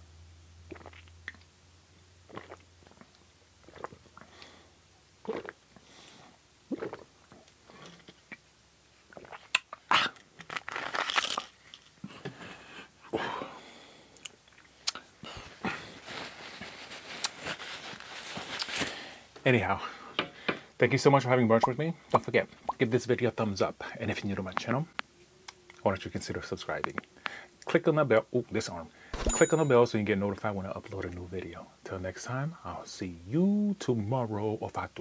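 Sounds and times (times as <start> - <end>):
swallowing gulps: 0.7 - 1.4, 2.3 - 4.4, 5.2 - 5.8, 6.7 - 8.4, 9.1 - 10.2
lip smacks: 14.2 - 15.1
paper napkin rustling: 15.8 - 19.0.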